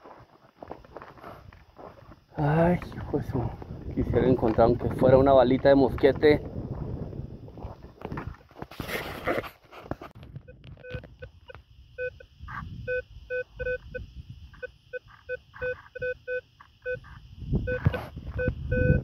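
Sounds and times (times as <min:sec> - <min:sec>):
low wind rumble: 0:02.0 - 0:08.4, 0:17.2 - 0:19.0
metal detector short beeps: 0:14.6 - 0:19.0.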